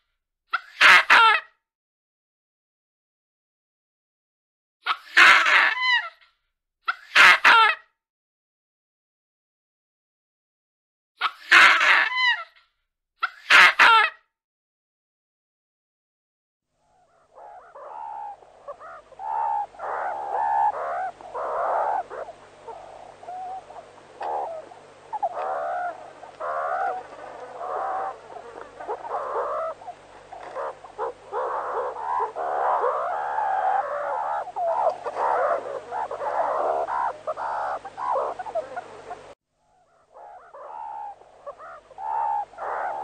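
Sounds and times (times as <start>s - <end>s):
meerkats chirping: 17.1s - 43.0s.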